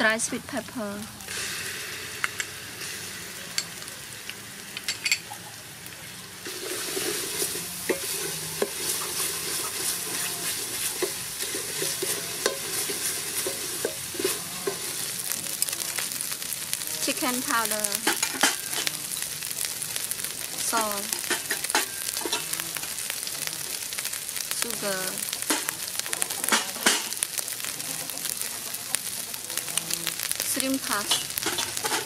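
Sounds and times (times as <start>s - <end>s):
paste sizzling in hot oil: 0.0s - 32.0s
metal spoon scraping a pot: 6.5s - 15.1s, 18.0s - 18.9s, 21.2s - 22.6s, 31.0s - 32.0s.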